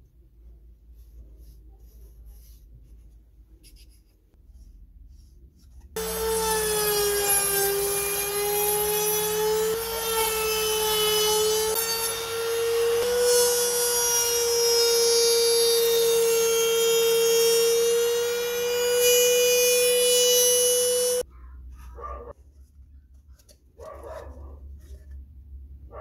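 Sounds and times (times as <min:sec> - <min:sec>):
router high whine: 0:06.0 - 0:14.6, 0:15.8 - 0:21.2
faint dog barks: 0:21.4 - 0:22.4, 0:23.8 - 0:24.9.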